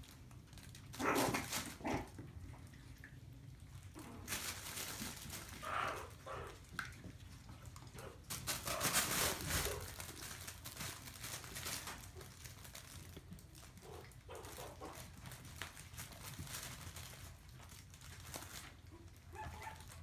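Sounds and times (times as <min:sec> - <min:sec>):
fabric tunnel rustling and crinkling: 0:04.0 - 0:05.7, 0:08.2 - 0:13.8
puppy vocal sounds: 0:05.4 - 0:10.0, 0:13.8 - 0:15.3, 0:18.8 - 0:20.0.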